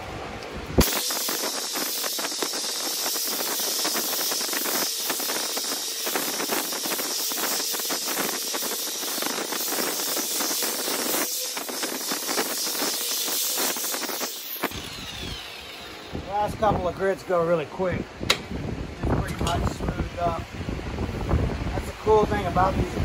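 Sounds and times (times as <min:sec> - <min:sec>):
sandpaper hissing on wood: 0:00.8 - 0:16.1
orbital sander motor whir: 0:00.8 - 0:17.3.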